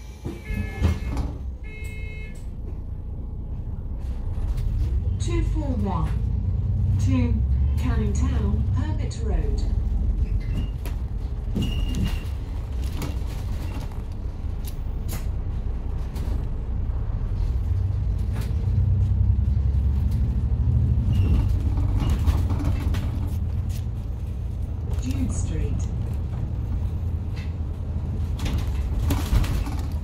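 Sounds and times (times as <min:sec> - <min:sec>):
bus engine and road rumble: 0:00.0 - 0:30.0
bodywork clicks and rattles: 0:09.9 - 0:16.6, 0:17.6 - 0:30.0.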